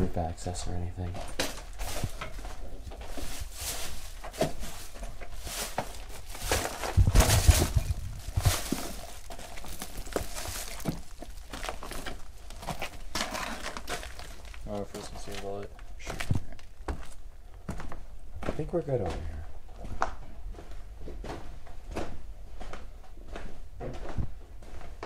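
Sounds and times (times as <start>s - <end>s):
footsteps on wooden floor: 1.1s - 13.3s, 16.0s - 25.0s
heavy low thumps: 6.9s - 9.1s.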